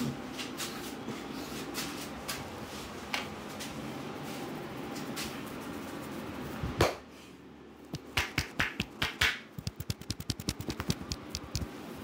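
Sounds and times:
fingers snapping in hair: 7.9 - 11.7.

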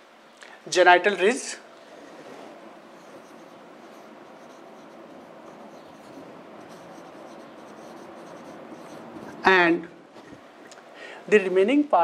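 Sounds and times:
marker rubbing on whiteboard: 2.9 - 9.6.

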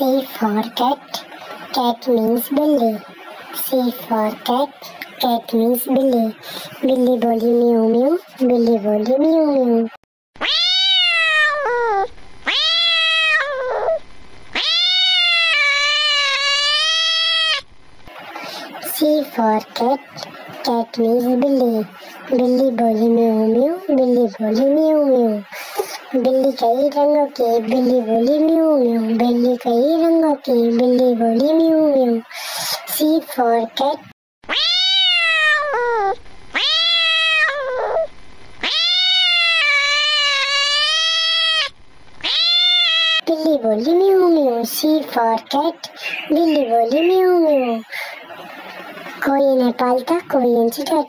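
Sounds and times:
cat meowing: 10.4 - 17.6, 34.5 - 43.2.

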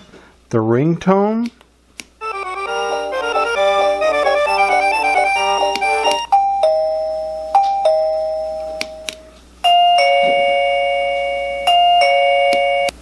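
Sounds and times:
doorbell ding-dong chime: 4.4 - 9.0, 9.6 - 12.9.

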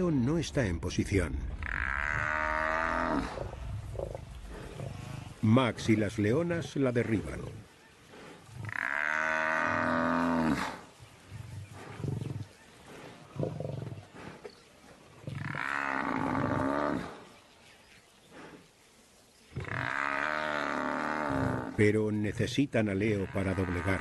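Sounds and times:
buffalo grunts: 1.5 - 17.3.

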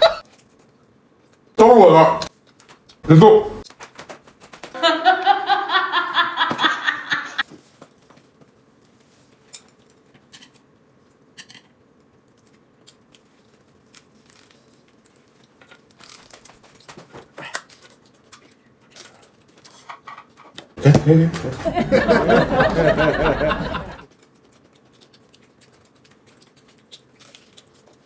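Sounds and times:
person laughing: 0.0 - 0.2, 4.8 - 7.4, 20.8 - 24.0
lettuce crunching and rustling: 12.2 - 19.9, 24.1 - 28.0
light eating clicks: 24.1 - 28.0.

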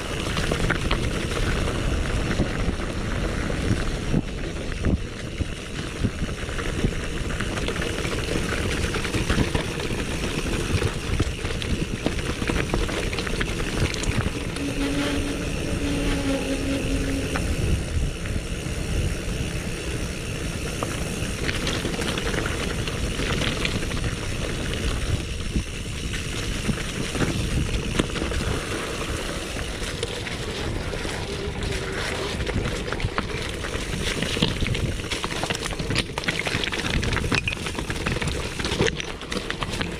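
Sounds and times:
bike rattling and clattering: 0.0 - 39.9
wind buffeting microphone: 0.0 - 39.9
tyres crunching over stones: 6.5 - 14.6, 26.1 - 39.9.

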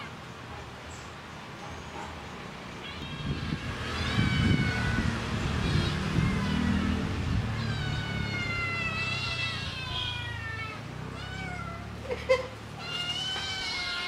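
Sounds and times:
kittens meowing: 2.7 - 12.1, 12.8 - 14.0.

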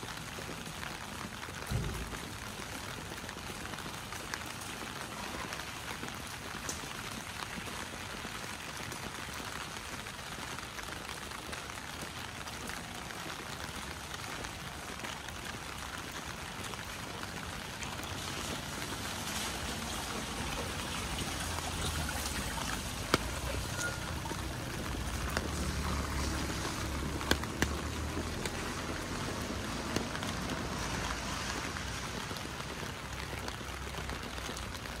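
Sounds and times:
steady rain: 0.0 - 35.0
water running and trickling: 15.5 - 35.0.

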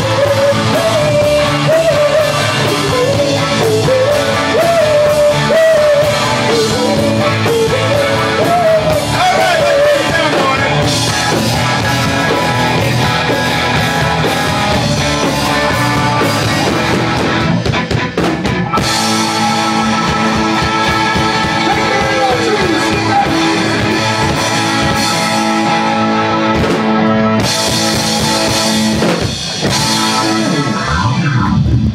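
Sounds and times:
person singing: 0.0 - 11.0, 18.8 - 26.1
rock band playing: 0.0 - 31.9.

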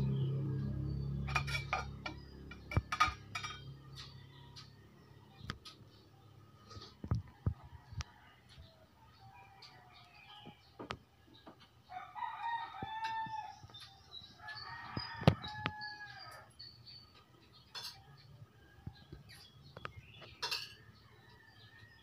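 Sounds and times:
rooster crowing: 11.9 - 13.6, 14.4 - 16.5.

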